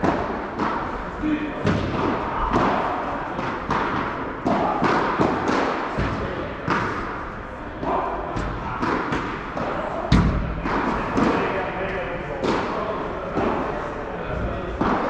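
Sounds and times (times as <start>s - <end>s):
rackets striking balls: 0.0s - 13.8s, 14.7s - 15.0s
balls bouncing on court: 7.8s - 11.5s.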